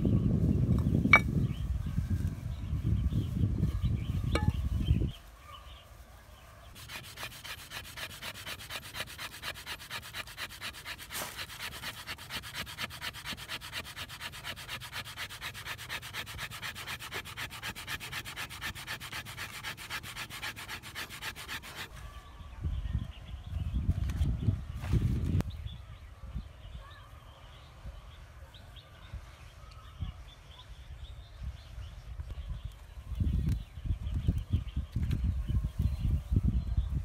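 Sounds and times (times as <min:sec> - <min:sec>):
wood scraping on wood: 0:06.8 - 0:22.0.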